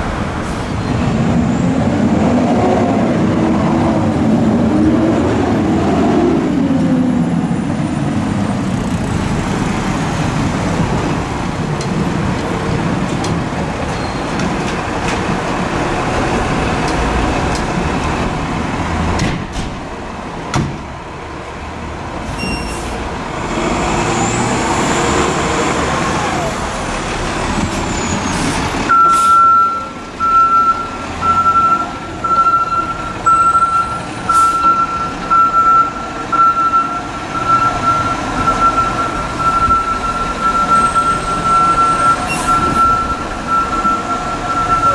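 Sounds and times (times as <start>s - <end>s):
fire engine running: 0.0s - 44.9s
backup alarm beeping: 28.9s - 44.9s.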